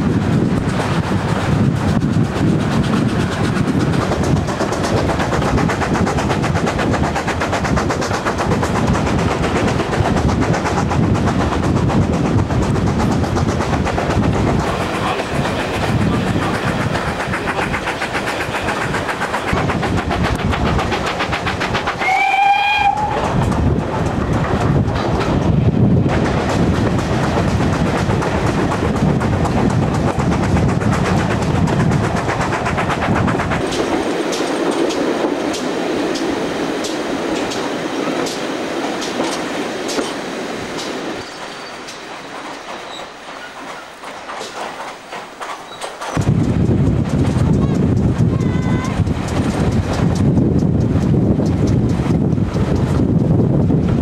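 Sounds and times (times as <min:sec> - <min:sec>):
train wheels clattering on rails: 0:00.0 - 0:54.0
steam locomotive whistle: 0:22.0 - 0:23.2.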